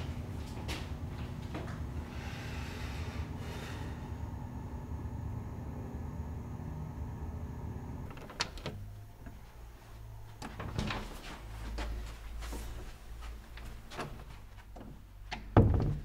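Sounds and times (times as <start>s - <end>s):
room hum: 0.0s - 16.0s
door knocks and bumps: 15.4s - 16.0s.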